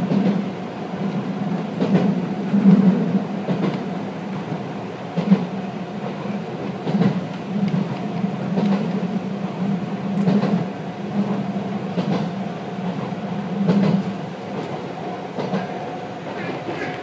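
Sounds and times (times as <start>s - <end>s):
train interior drone: 0.0s - 17.0s.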